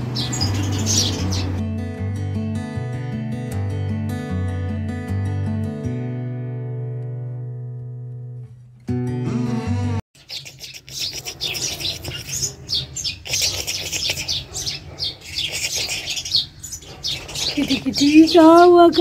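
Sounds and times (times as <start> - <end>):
small birds chirping: 0.0 - 1.6, 10.2 - 19.0
guitar music: 0.0 - 10.0.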